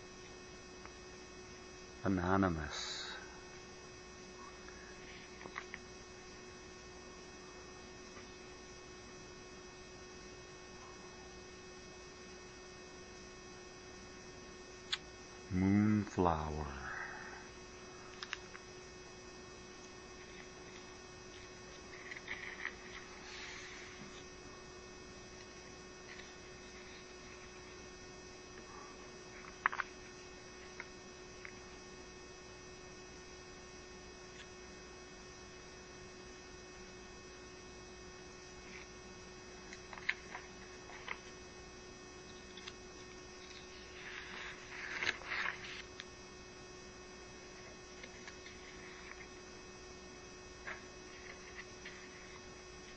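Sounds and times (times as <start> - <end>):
electrical hum with high whine: 0.0 - 52.9
faint clicks and rustles: 42.2 - 46.1.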